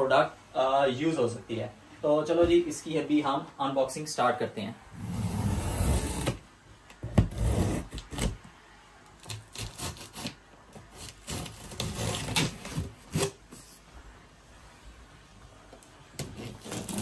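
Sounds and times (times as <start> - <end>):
cardboard scraping and rubbing: 5.0 - 6.4, 7.2 - 8.4, 9.5 - 13.9, 16.2 - 17.0.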